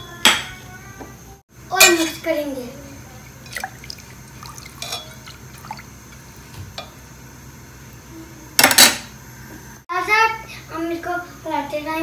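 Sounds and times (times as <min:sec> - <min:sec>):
water sloshing in a pot: 0:03.2 - 0:07.0
spoon clinking on pot: 0:04.8 - 0:05.2.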